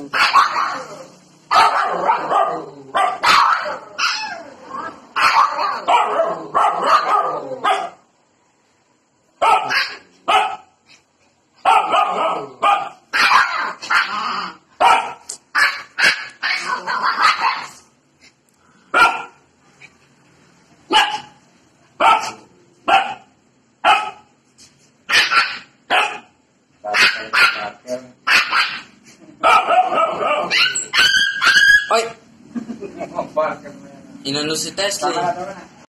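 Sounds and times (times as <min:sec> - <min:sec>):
puppies barking: 0:00.0 - 0:08.0, 0:09.4 - 0:10.8, 0:11.6 - 0:17.8, 0:18.9 - 0:19.4, 0:20.9 - 0:21.4, 0:22.0 - 0:24.3, 0:25.1 - 0:32.1.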